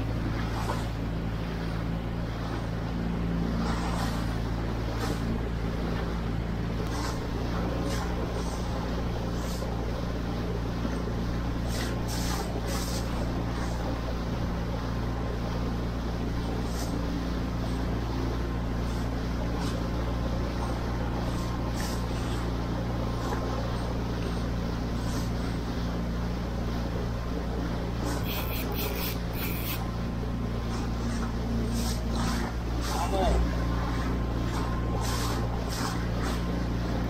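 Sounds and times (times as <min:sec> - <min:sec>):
boat engine running: 0:00.0 - 0:37.0
water spray splashes: 0:34.6 - 0:36.4.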